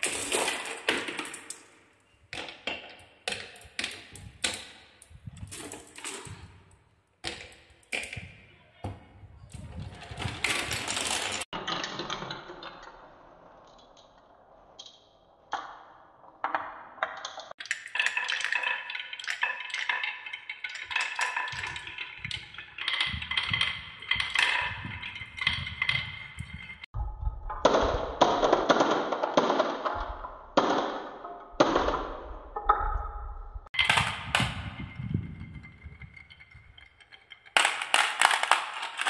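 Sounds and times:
glass marbles clattering on wood: 9.6 - 12.4, 16.4 - 26.9, 33.7 - 39.0
marbles clinking together: 33.8 - 39.0.

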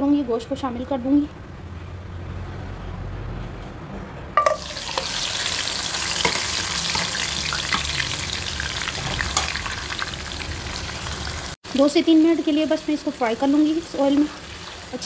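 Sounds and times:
meat clattering into hot oil: 4.4 - 11.1
meat sizzling in a wok: 4.5 - 15.0.

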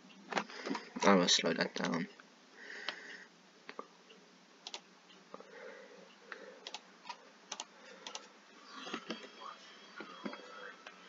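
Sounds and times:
computer mouse clicks: 4.6 - 4.8, 6.6 - 8.3.

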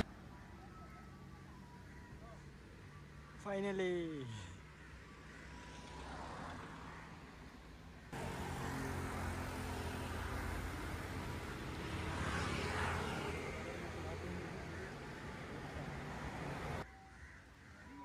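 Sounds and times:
road traffic rumble: 0.0 - 16.9.

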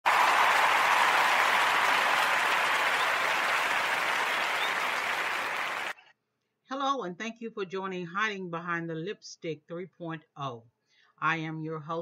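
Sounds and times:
audience applause: 0.0 - 6.0.

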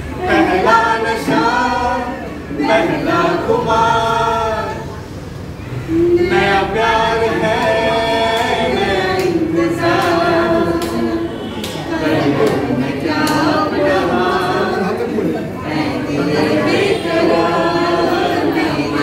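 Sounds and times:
group of voices singing: 0.0 - 19.0.

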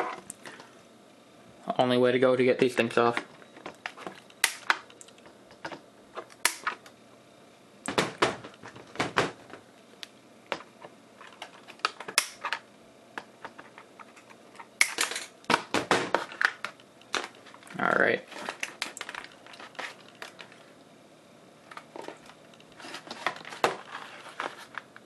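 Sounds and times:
cardboard being handled: 22.8 - 24.9.

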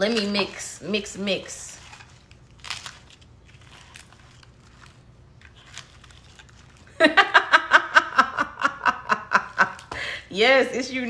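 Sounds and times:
woman laughing: 7.0 - 10.2.

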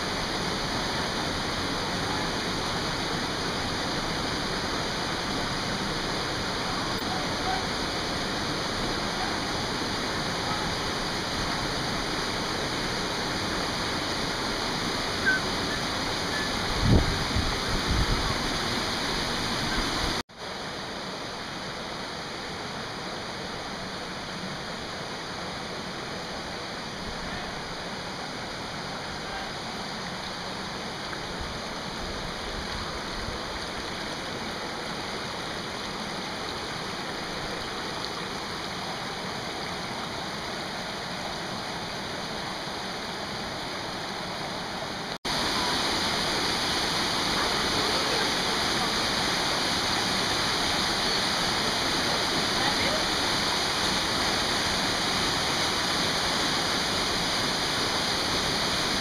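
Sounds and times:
stream rushing over boulders: 0.0 - 59.0.

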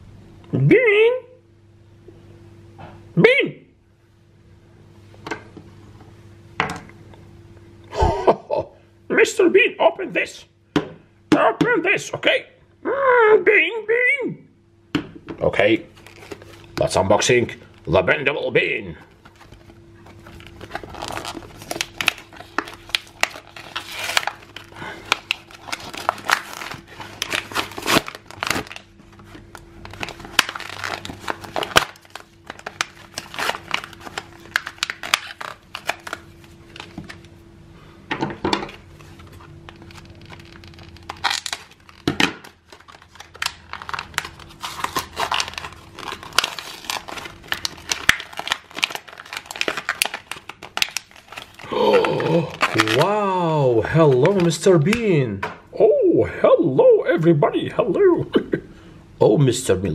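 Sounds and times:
plastic packaging crinkling and tearing: 15.9 - 18.0, 19.0 - 37.3, 38.9 - 55.0.

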